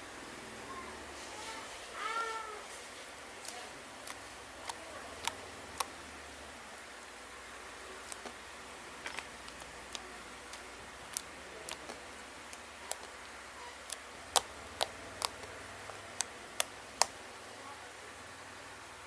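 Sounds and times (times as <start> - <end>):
slime clicking and popping: 4.0 - 5.9, 8.0 - 8.4, 9.1 - 17.2.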